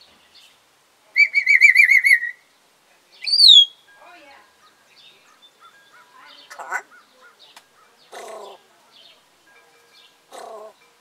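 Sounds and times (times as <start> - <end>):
parrot calls and chirps: 1.2 - 2.5, 3.2 - 9.1, 10.0 - 11.0.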